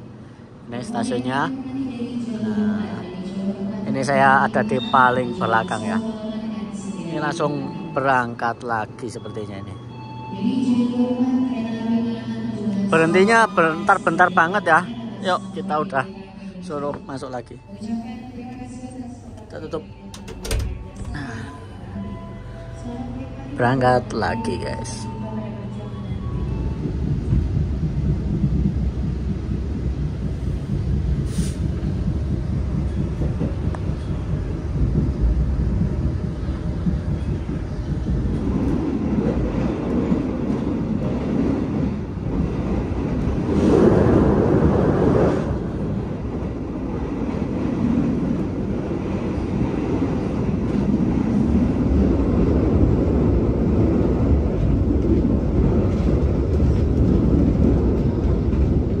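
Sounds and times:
train wheels rumbling on rails: 17.8s - 24.4s, 25.1s - 59.0s.

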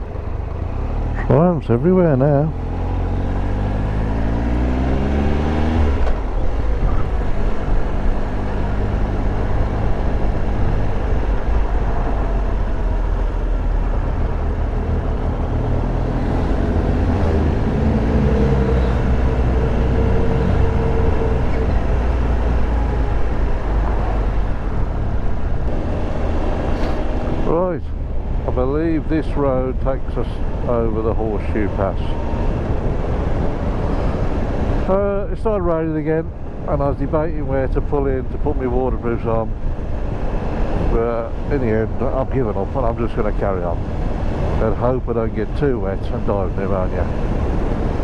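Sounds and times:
wind and road noise: 0.0s - 48.0s.

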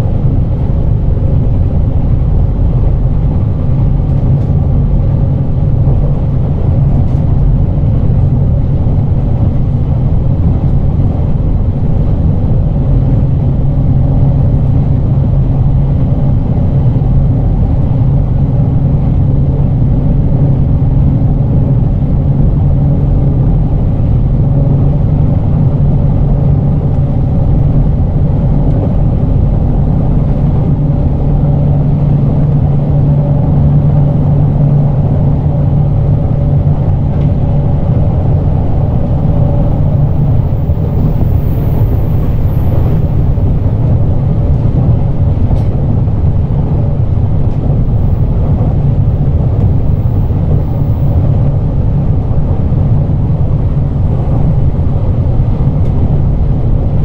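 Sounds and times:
low hum: 0.0s - 57.0s
train wheels rumbling on rails: 0.0s - 57.0s.

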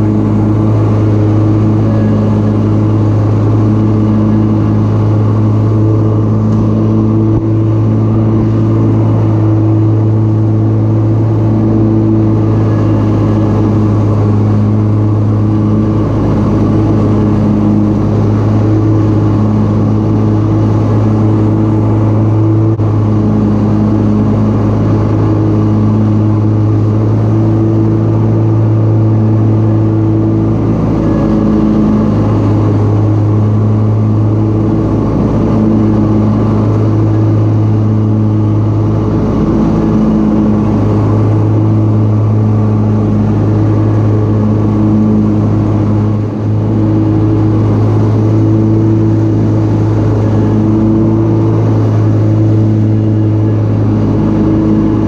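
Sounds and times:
lawn mower engine hum: 0.0s - 55.0s
mower blades mulching leaves: 0.0s - 55.0s.

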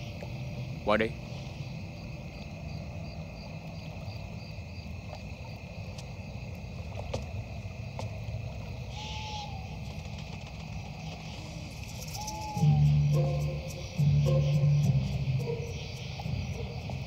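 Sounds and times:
insect trill: 0.0s - 17.0s
falling whistle: 12.0s - 15.8s.

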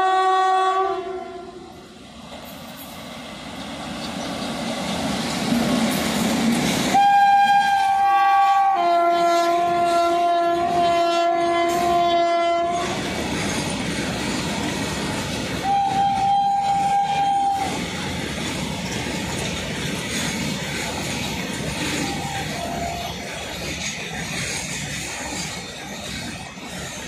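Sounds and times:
locomotive horn blasts: 0.0s - 1.6s, 6.9s - 13.0s, 15.6s - 17.8s
freight wagons rumbling on rails: 2.2s - 27.0s.

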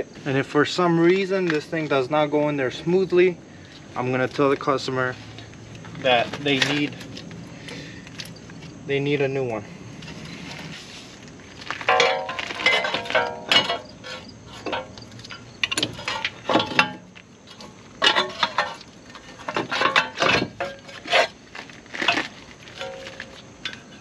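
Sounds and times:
metal hand tools clinking: 11.9s - 17.0s.

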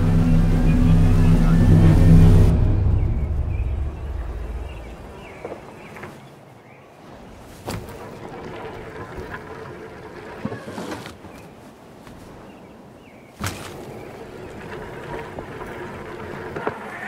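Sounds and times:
low rumble: 0.0s - 5.6s.

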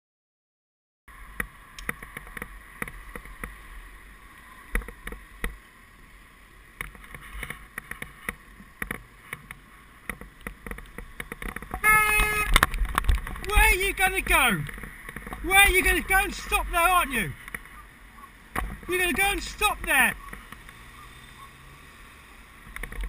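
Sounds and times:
low wind rumble: 1.1s - 19.0s
bicycle rattles and knocks: 1.4s - 3.6s, 4.6s - 5.6s, 6.8s - 13.6s, 14.5s - 15.5s, 22.6s - 23.0s.

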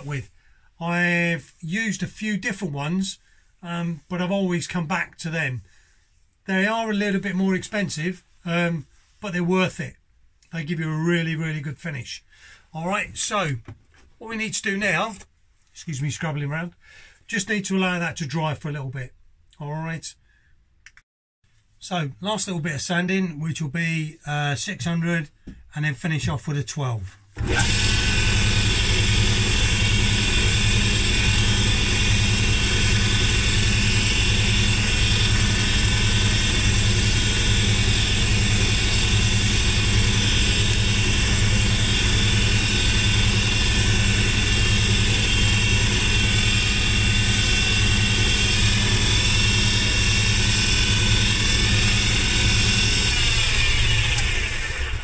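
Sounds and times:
lathe spinning down: 27.4s - 55.0s
wood lathe motor running: 27.4s - 55.0s.

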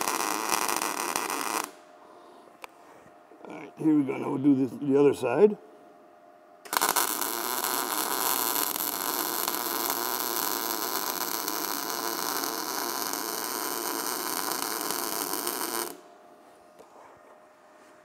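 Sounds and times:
welding arc hissing: 0.0s - 1.8s, 6.7s - 16.0s.

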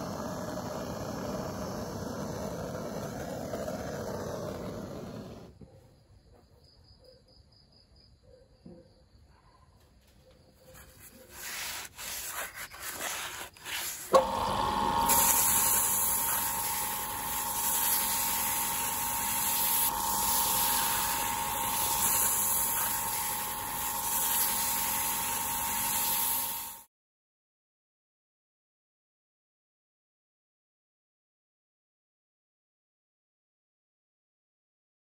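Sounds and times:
sandpaper sanding wood: 10.7s - 26.8s
lathe motor whine: 13.7s - 26.8s.

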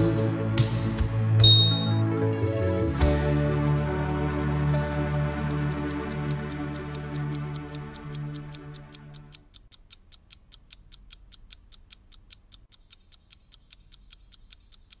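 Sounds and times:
music held notes: 0.0s - 9.2s
alarm clock ticking: 4.4s - 15.0s.

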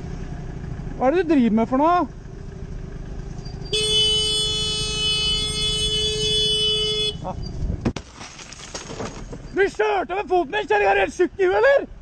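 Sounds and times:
engine and street traffic noise: 0.0s - 12.0s
vehicle horn: 3.7s - 7.4s.

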